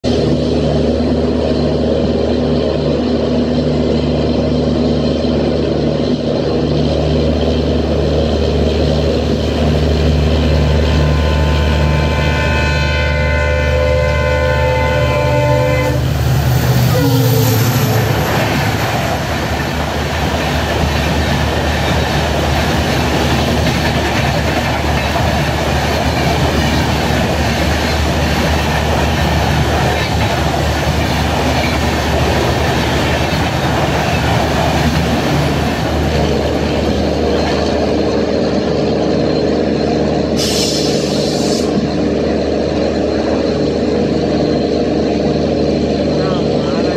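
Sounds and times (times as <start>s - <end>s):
humming tone: 6.0s - 18.4s
train wheels clattering on rails: 16.1s - 46.9s
brief hiss: 40.4s - 41.7s.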